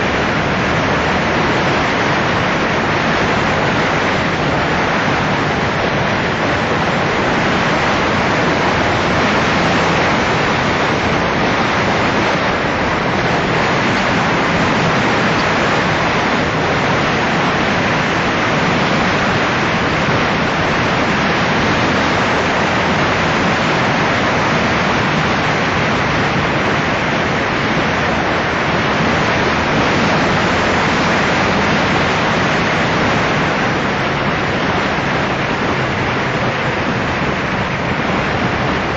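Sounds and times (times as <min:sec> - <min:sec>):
faint engine hum: 0:00.0 - 0:38.9
wind rushing over microphone: 0:00.0 - 0:38.9.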